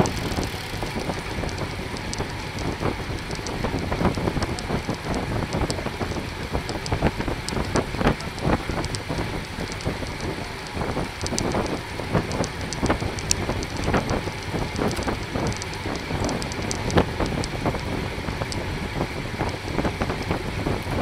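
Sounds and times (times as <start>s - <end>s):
clicks and rattles: 0.0s - 17.8s
bicycle road noise: 0.0s - 21.0s
wind on microphone: 0.0s - 21.0s.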